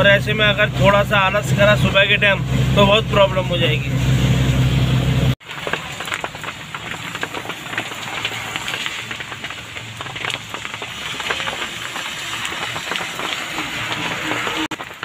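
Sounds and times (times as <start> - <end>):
rain on wet pavement: 5.4 - 15.0.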